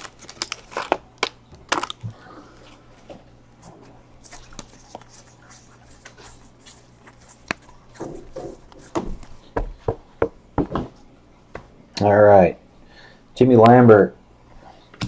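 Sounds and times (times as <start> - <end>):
trading cards rustling: 0.0 - 2.1, 4.2 - 8.0
card shuffling: 4.2 - 9.5.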